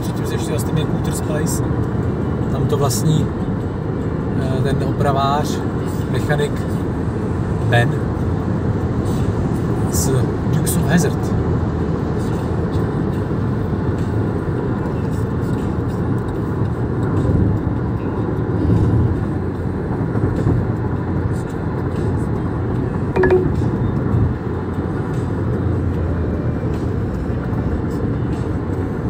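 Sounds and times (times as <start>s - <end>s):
car road and tyre rumble: 0.0s - 29.0s
short beep: 23.2s - 23.7s.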